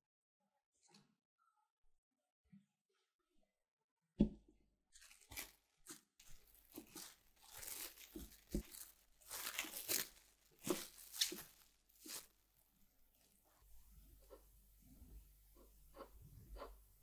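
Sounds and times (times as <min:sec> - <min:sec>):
cling film crinkling: 0:05.0 - 0:13.3.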